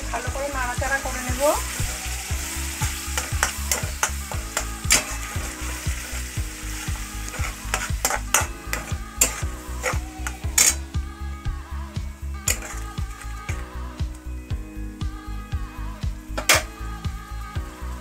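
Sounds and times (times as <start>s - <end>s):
paste sizzling in hot oil: 0.0s - 11.0s, 12.2s - 14.0s
background music with low beat: 0.0s - 18.0s
spatula scraping pan: 2.7s - 10.8s, 12.5s - 13.6s.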